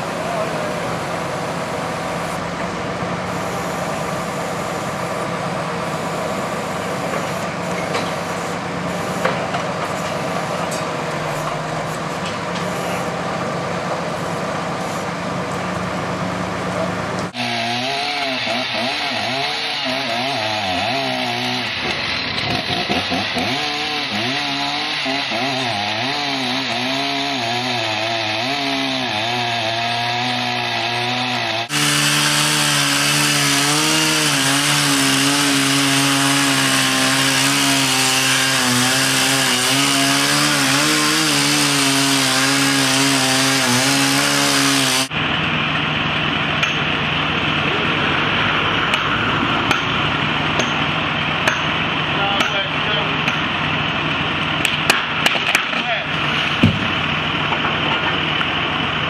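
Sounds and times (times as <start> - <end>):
chainsaw cutting wood: 17.2 - 45.2, 48.8 - 58.6.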